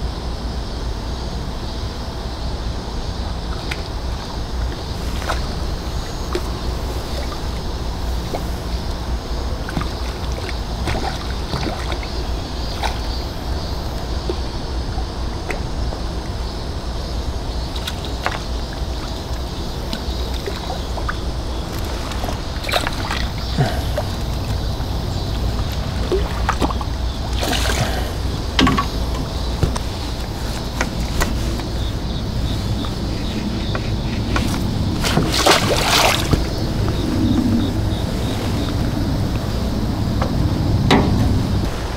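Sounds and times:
wind rumbling on microphone: 0:00.0 - 0:41.9
water lapping: 0:02.4 - 0:41.9
rustle or splash: 0:03.2 - 0:41.9.

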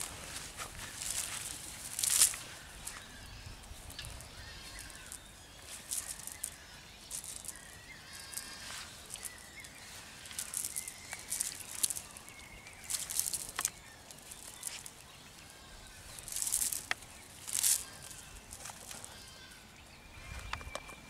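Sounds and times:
faint bird calls: 0:00.0 - 0:21.0.

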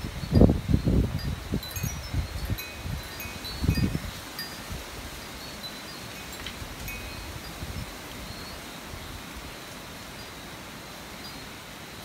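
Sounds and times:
storm wind: 0:00.0 - 0:05.5, 0:06.4 - 0:09.6
gusts buffeting microphone: 0:00.0 - 0:09.6
rain hiss: 0:00.0 - 0:12.0
faint high tinkling tones: 0:00.1 - 0:10.6, 0:11.2 - 0:12.0.

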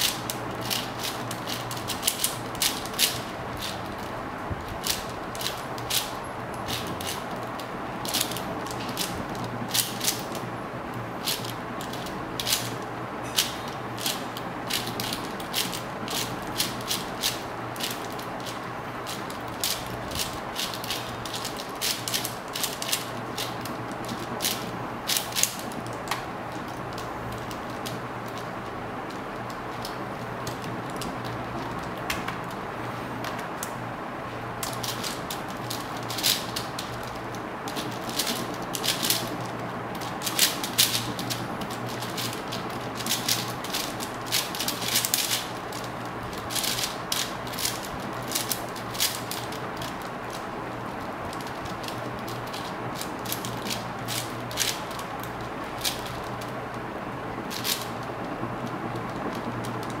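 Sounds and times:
speed cube clicking: 0:00.0 - 0:10.5, 0:11.2 - 0:32.6, 0:34.6 - 0:56.7, 0:57.4 - 1:00.0
steady low hum: 0:00.0 - 1:00.0.

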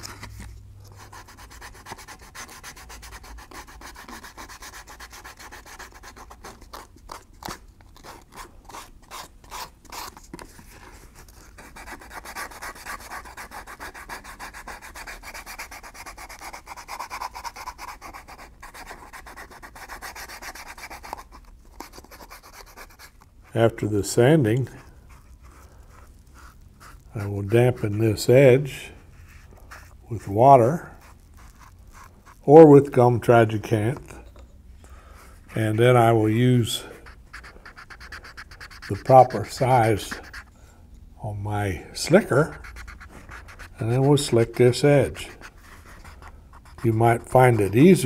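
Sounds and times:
sandpaper rubbing leather: 0:01.0 - 0:06.9, 0:11.5 - 0:23.0, 0:37.0 - 0:40.5, 0:42.1 - 0:48.0.

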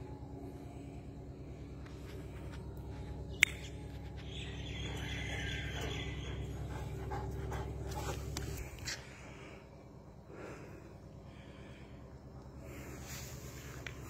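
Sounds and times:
steady low rumble: 0:00.0 - 0:14.0
dog panting: 0:03.9 - 0:09.2.

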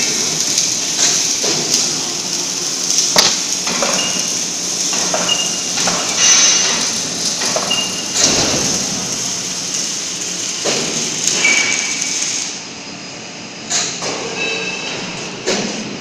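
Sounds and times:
steady rushing hiss: 0:00.0 - 0:12.8.

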